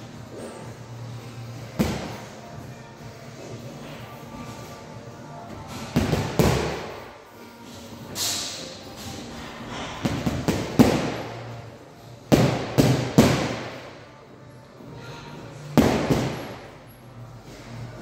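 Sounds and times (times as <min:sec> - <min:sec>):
gloves punching a heavy bag: 0:01.8 - 0:02.2, 0:05.8 - 0:07.0, 0:09.7 - 0:11.4, 0:12.3 - 0:13.8, 0:15.8 - 0:16.6.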